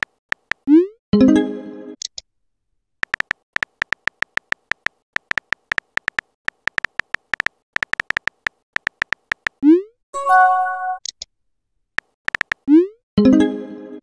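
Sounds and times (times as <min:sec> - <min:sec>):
phone keyboard typing clicks: 0:00.0 - 0:00.7, 0:03.0 - 0:09.6, 0:12.0 - 0:12.7.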